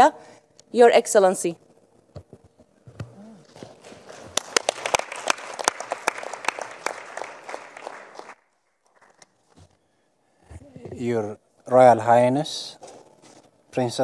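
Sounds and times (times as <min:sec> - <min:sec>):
audience applauding: 0:03.6 - 0:09.2.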